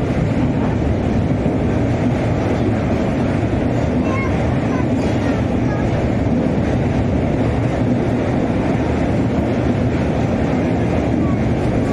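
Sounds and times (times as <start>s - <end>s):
train wheels rumbling on rails: 0.0s - 11.9s.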